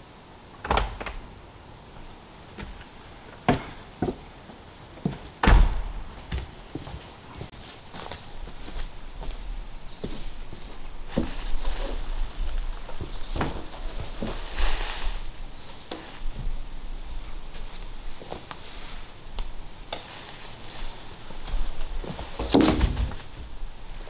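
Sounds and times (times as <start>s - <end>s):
footsteps: 5.0s - 24.0s
insects trilling: 10.1s - 22.5s
wooden pole knocks and thuds: 22.0s - 23.2s.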